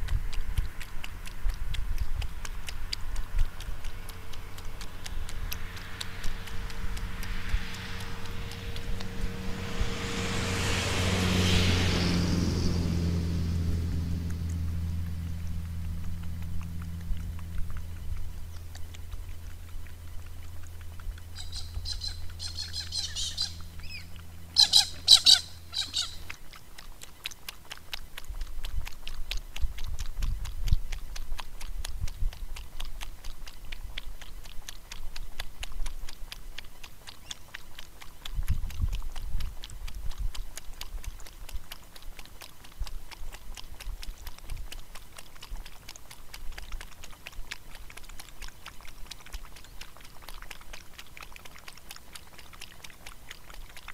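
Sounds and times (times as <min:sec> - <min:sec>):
low rumbles: 0:00.0 - 0:26.5
bird chattering and squawking: 0:21.3 - 0:26.3.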